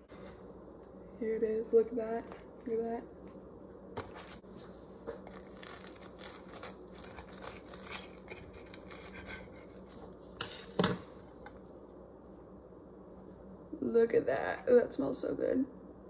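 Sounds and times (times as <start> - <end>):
knife sawing through crusty bread: 5.5 - 10.0.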